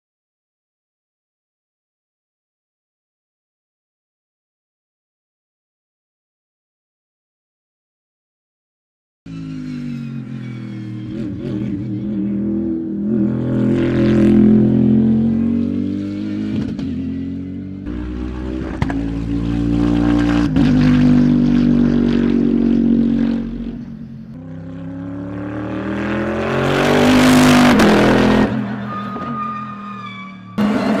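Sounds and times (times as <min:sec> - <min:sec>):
race car engine passing by: 0:09.3 - 0:31.0.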